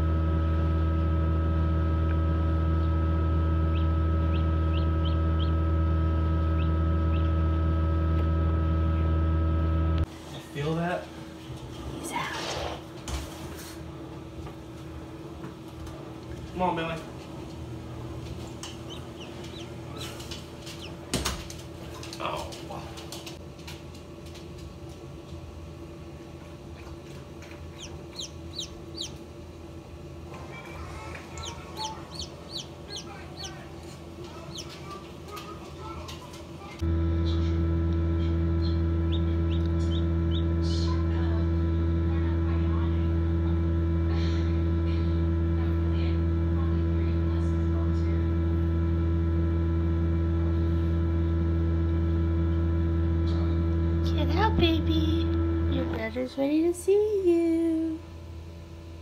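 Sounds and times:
incubator hum: 0.0 - 59.0
chick peeping: 3.6 - 5.7, 6.4 - 7.5, 18.6 - 21.0, 27.7 - 29.2, 30.7 - 33.7, 34.4 - 35.0, 38.5 - 40.8.

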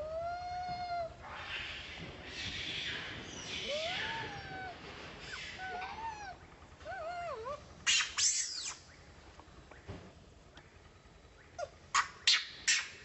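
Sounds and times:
baby macaque crying: 3.6 - 8.8.

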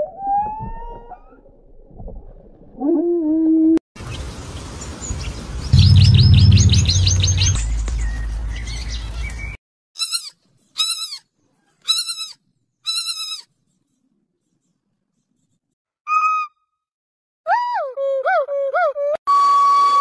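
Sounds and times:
low hum: 5.8 - 9.0
high squeaky chirps: 10.0 - 11.2, 11.9 - 13.5
piglets squealing: 10.0 - 11.2.

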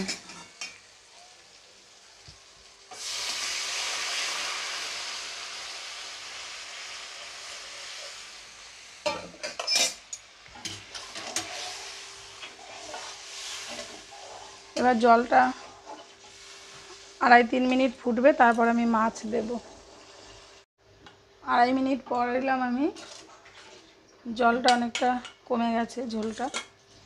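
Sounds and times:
water hitting hot oil sizzling: 0.0 - 20.7
metal spatula scraping a pan: 10.6 - 17.0, 22.9 - 23.9, 26.1 - 26.7.

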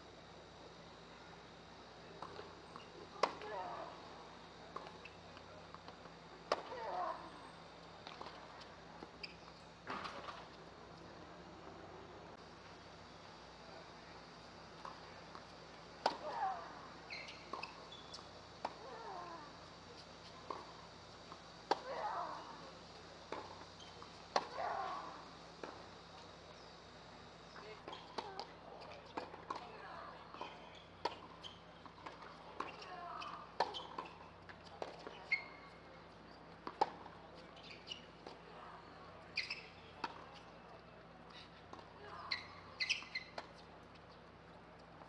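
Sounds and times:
short high-pitched squeaks: 42.3 - 43.4.

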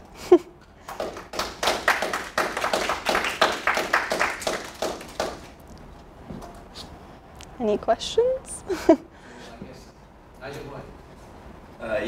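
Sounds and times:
audience applauding: 0.8 - 5.6.

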